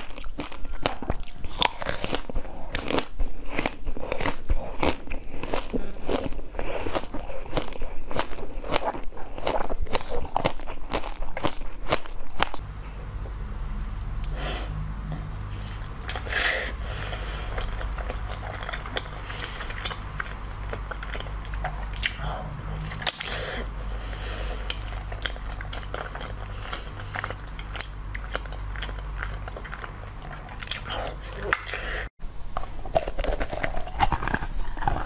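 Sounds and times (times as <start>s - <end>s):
chewing soft jelly: 0.0s - 12.6s, 15.3s - 32.1s, 32.9s - 35.0s
steady low hum: 0.0s - 35.0s.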